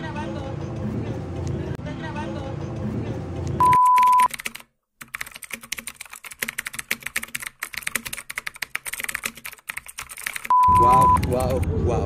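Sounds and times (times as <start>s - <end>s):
computer keyboard typing: 3.6s - 11.6s.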